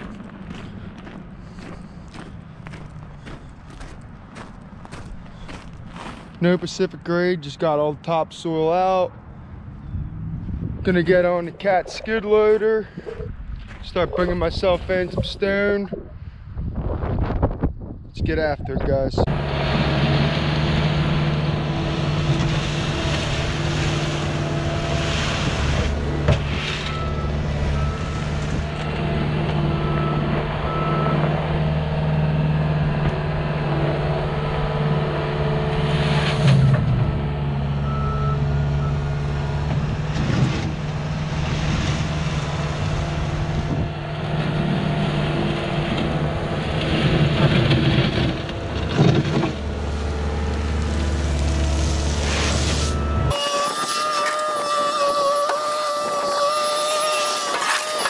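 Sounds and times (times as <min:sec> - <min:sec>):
diesel engine running: 0:00.0 - 0:06.3, 0:19.2 - 0:53.6
reversing alarm beeping: 0:26.8 - 0:29.0, 0:37.8 - 0:39.2, 0:52.8 - 0:53.8.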